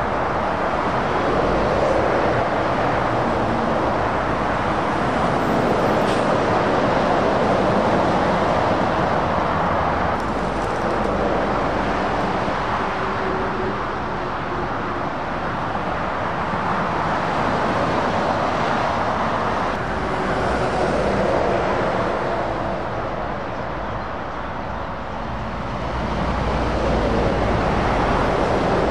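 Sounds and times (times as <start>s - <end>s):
motorway traffic rushing past: 0.0s - 28.9s.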